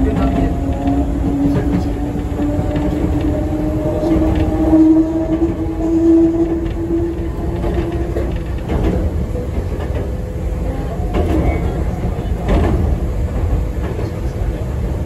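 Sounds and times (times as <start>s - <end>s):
electric train rumbling: 0.0s - 15.0s
knocks from the track: 12.4s - 14.1s.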